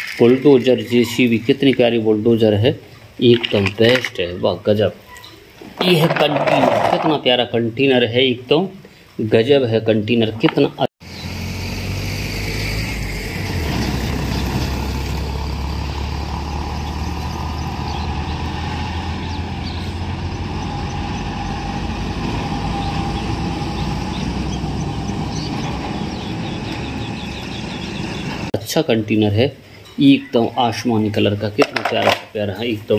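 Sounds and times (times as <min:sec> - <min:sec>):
truck engine droning: 0:11.0 - 0:28.6.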